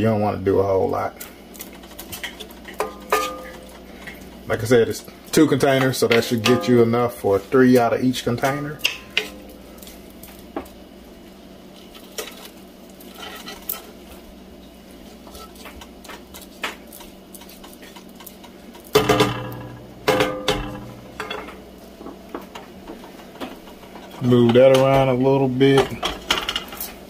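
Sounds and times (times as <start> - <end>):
spatula scraping a pan: 1.7 - 4.3, 11.8 - 14.2, 15.1 - 19.0.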